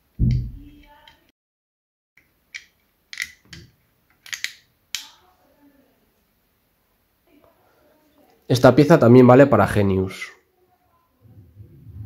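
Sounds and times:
hard plastic clicks: 2.5s - 5.1s.

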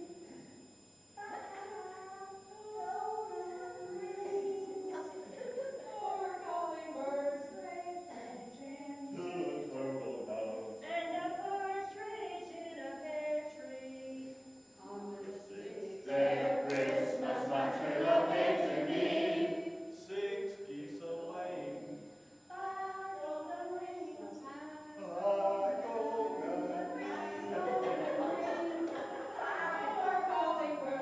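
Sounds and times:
group singing unaccompanied: 14.9s - 20.0s, 24.8s - 31.0s.

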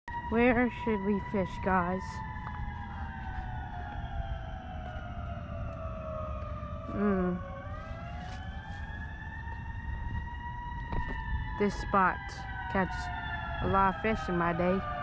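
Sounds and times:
siren wailing: 0.1s - 15.0s.

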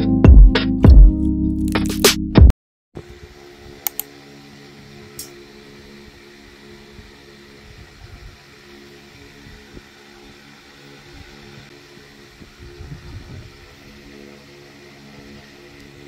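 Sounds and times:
low mechanical hum: 3.0s - 16.0s
sharp clicks: 3.8s - 4.1s.

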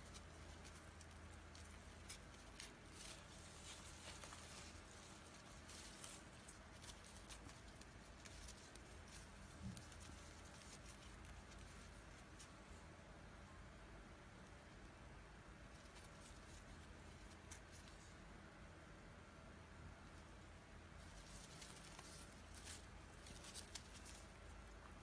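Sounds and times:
yarn rustling with crochet hook: 0.0s - 18.7s, 19.7s - 25.0s
quiet room hum: 0.0s - 25.0s.

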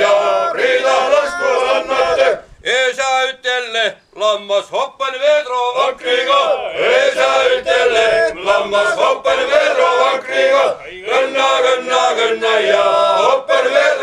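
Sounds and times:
men's choir singing: 0.0s - 2.4s, 5.5s - 14.0s.

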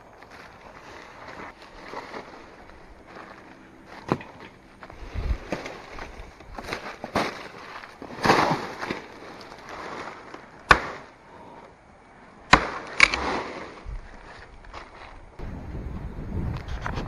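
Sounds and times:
dry leaves rustling: 0.0s - 11.5s
machete striking bamboo: 10.7s - 11.1s, 12.5s - 13.6s.

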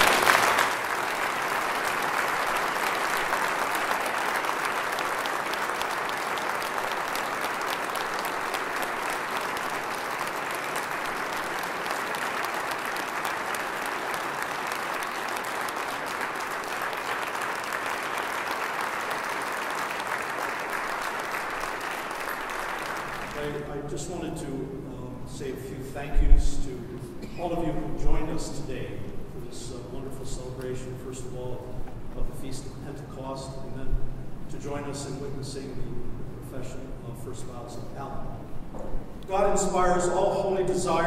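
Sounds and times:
congregation applauding: 0.0s - 24.0s.

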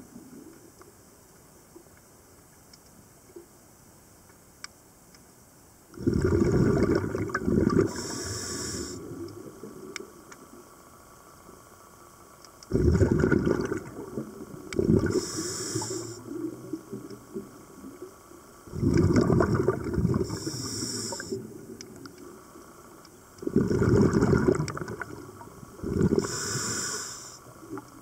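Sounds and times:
bubbling exhaled air: 6.0s - 9.9s, 12.7s - 22.5s, 23.4s - 27.8s
diver breathing through regulator: 7.8s - 9.1s, 14.8s - 16.5s, 20.2s - 21.4s, 25.8s - 27.5s
short high hiss: 7.9s - 9.0s, 15.1s - 16.2s, 20.3s - 21.4s, 26.2s - 27.5s.

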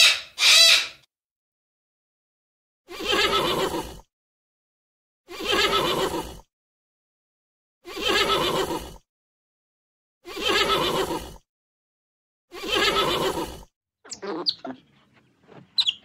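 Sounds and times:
animal wavering cry: 0.0s - 1.0s, 5.3s - 6.4s, 7.9s - 9.0s, 10.3s - 11.3s, 12.5s - 14.8s.

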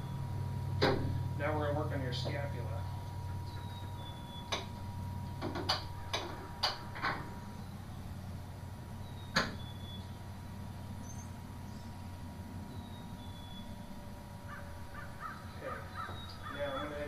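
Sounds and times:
faint constant tone: 0.0s - 17.0s
low electrical hum: 0.0s - 17.0s
sharp mechanical clicks and knocks: 5.4s - 7.3s.

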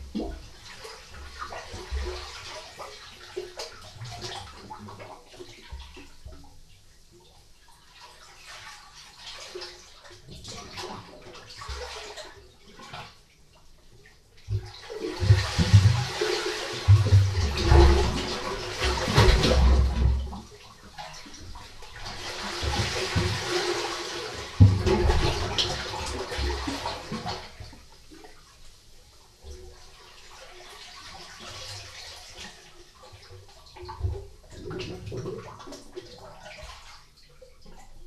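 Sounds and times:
sea water sloshing in rock cave: 0.0s - 38.0s
low thuds of water: 14.4s - 20.6s, 21.5s - 27.7s.

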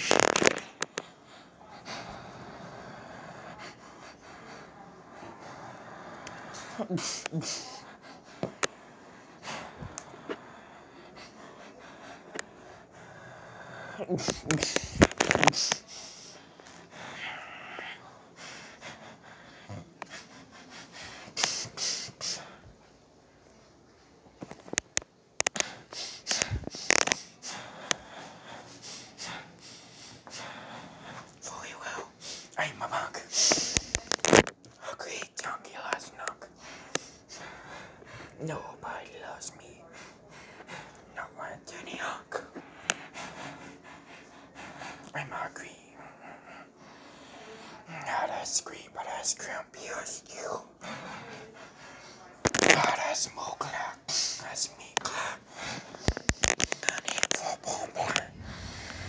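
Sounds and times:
camera scraping fabric: 0.0s - 1.0s, 14.2s - 15.8s, 56.0s - 59.0s
sharp breath close to microphone: 54.1s - 59.0s.

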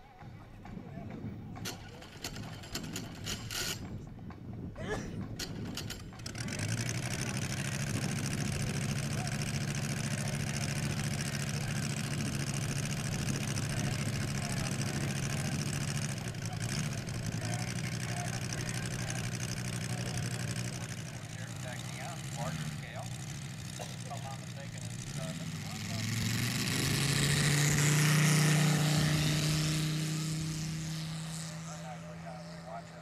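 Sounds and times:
model plane engine idling: 1.5s - 4.2s, 5.2s - 33.0s.

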